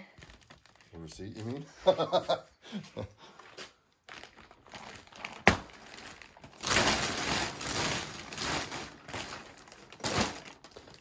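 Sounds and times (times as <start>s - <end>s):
plastic bag rustling: 0.0s - 2.2s, 3.4s - 11.0s
plastic bag snap: 5.2s - 11.0s.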